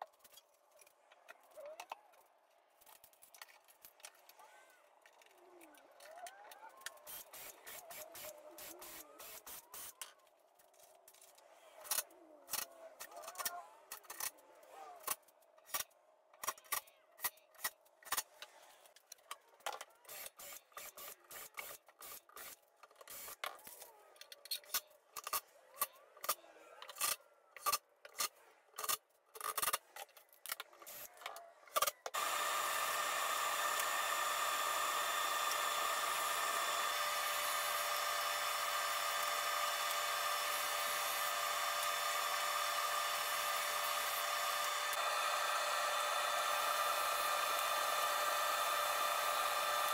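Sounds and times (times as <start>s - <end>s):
woodworking machine whine and hiss: 7.0s - 10.0s, 32.2s - 49.9s
cordless drill bursts: 7.1s - 9.9s, 20.1s - 23.4s, 32.1s - 49.9s
clamps clicking and knocking: 15.0s - 32.2s.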